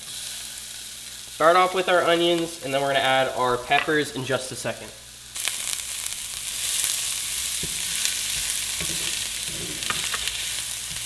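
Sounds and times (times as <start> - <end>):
onions sizzling in a skillet: 0.0 - 11.0
wooden spoon scraping a pan: 7.3 - 11.0.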